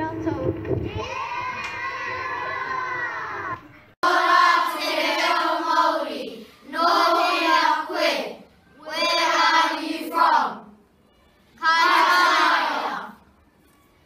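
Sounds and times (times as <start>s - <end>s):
children singing in unison: 4.0s - 10.7s, 11.6s - 13.2s.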